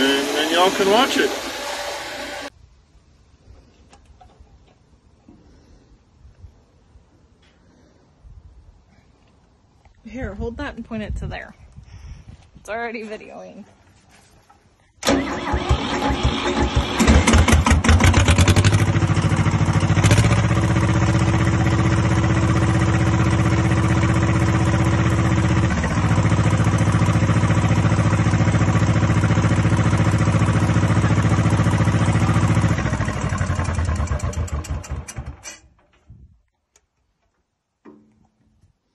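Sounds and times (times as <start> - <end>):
tractor engine idling: 15.0 - 35.4.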